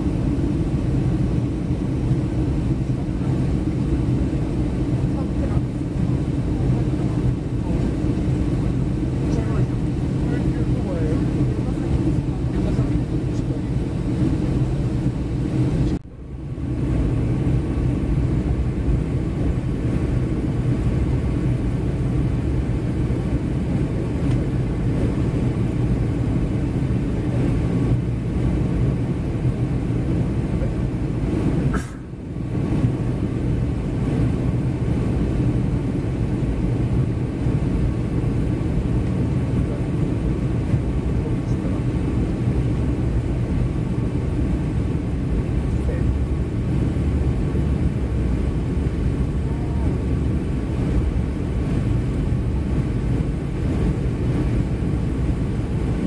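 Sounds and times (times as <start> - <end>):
airplane cabin engine rumble: 0.0 - 56.0.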